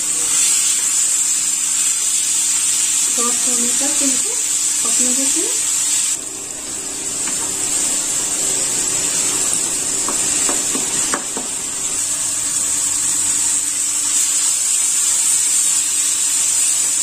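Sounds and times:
food sizzling in oil: 0.0 - 17.0
spatula knocks: 7.2 - 7.6, 10.0 - 11.6.

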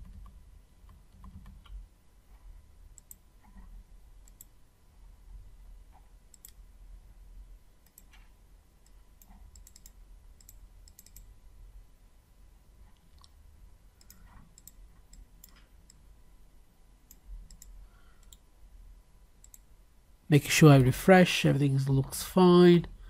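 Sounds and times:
computer mouse and keyboard clicks: 0.0 - 1.8, 2.9 - 4.6, 5.9 - 6.6, 7.8 - 11.3, 14.0 - 16.0, 17.1 - 18.4
low steady hum: 0.0 - 23.0.

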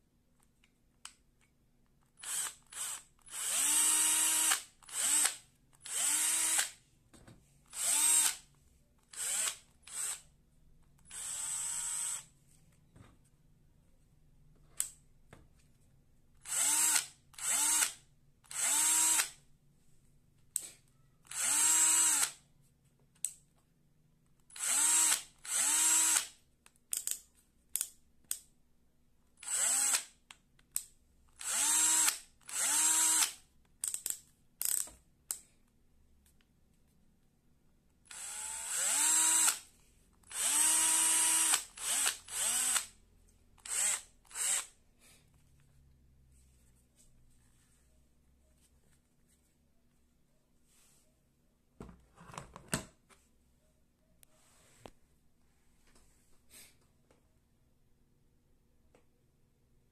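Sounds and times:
cordless drill motor whining: 2.2 - 6.7, 7.7 - 8.4, 9.2 - 10.2, 11.1 - 12.2, 16.5 - 17.9, 18.5 - 19.3, 21.3 - 22.3, 24.5 - 26.2, 29.4 - 30.0, 31.4 - 33.3, 38.1 - 39.6, 40.3 - 42.9, 43.6 - 44.7.

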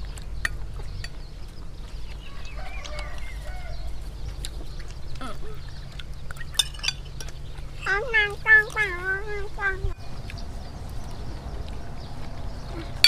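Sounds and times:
ducks quacking: 7.7 - 10.5.

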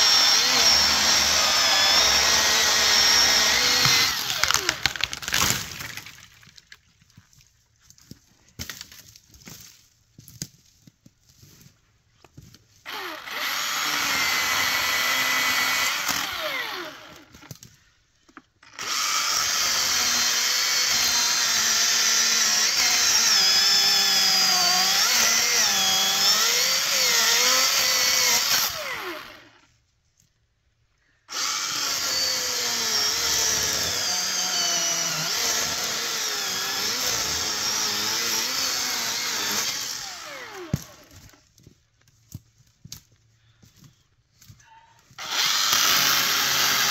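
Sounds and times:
electric chainsaw cutting wood: 0.0 - 5.9, 12.9 - 17.5, 18.6 - 29.6, 31.3 - 41.3, 45.2 - 46.9.

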